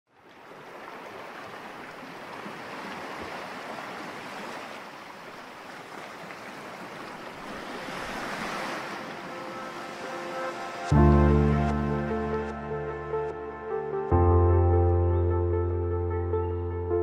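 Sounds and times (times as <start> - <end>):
small sea waves washing: 0.1 - 10.9.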